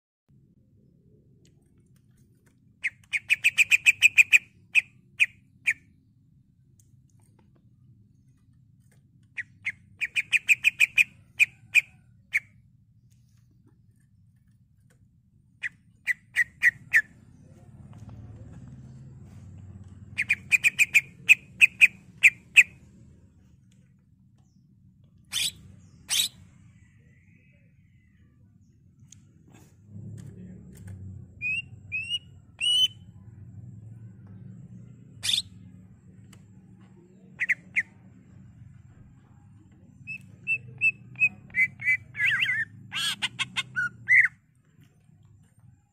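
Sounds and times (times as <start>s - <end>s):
bird calling in sharp clipped notes: 2.8s - 6.0s, 9.3s - 12.5s
low steady hum: 4.4s - 45.9s
bird whistling calls: 31.4s - 33.0s.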